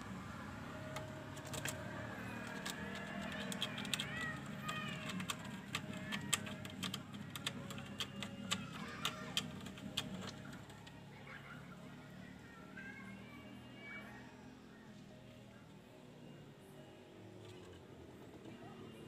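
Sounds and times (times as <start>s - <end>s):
kitten claws scratching wood: 1.4s - 10.5s.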